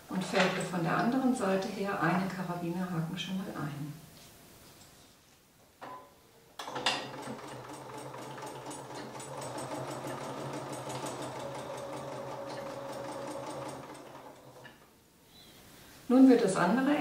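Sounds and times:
sewing machine stitching: 0:06.6 - 0:14.8.

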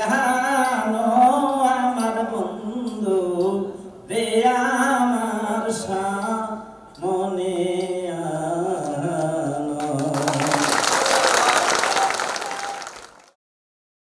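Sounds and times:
man singing into microphone: 0:00.0 - 0:10.8
audience applause: 0:09.8 - 0:13.4.

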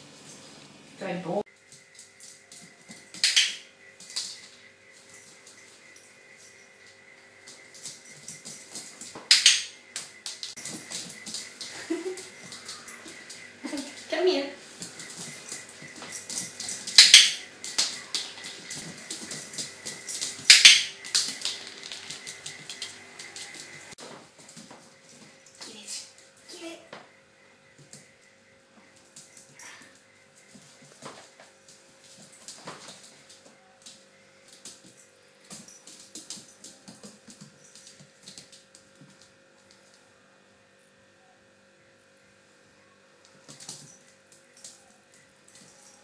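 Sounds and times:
dog claws clicking on tiles: 0:01.9 - 0:04.6, 0:07.4 - 0:14.1, 0:14.7 - 0:24.6, 0:32.3 - 0:39.8.

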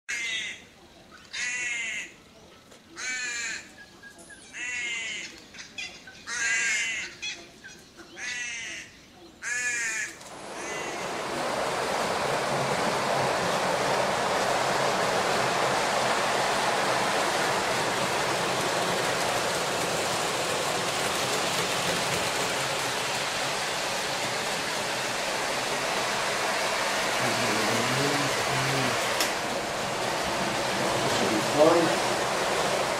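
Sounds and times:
crow cawing: 0:01.4 - 0:02.1, 0:08.3 - 0:10.9
steady hiss: 0:10.2 - 0:32.9.

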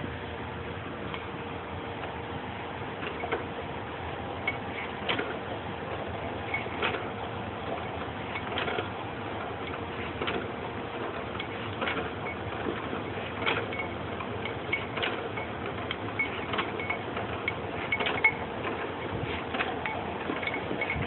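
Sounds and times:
steady mechanical noise: 0:00.0 - 0:21.0
slicer crank clicks and ticks: 0:04.4 - 0:21.0.

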